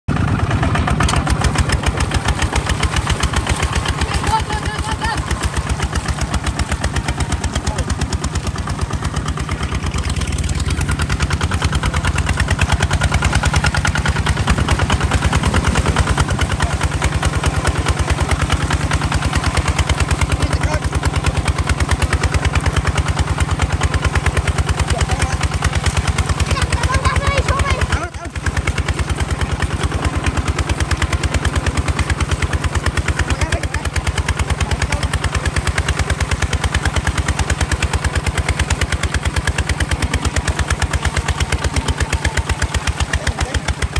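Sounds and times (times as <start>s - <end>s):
diesel engine chugging: 0.1s - 43.9s.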